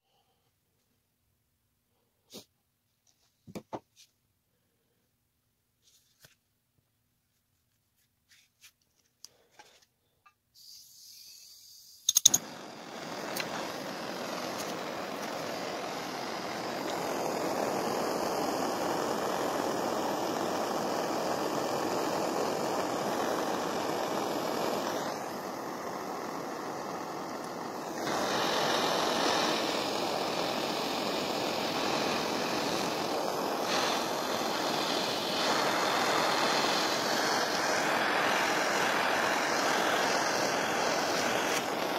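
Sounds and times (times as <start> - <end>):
torch flame hissing: 10.6 - 41.9
gas torch ignition click: 12.0 - 41.9.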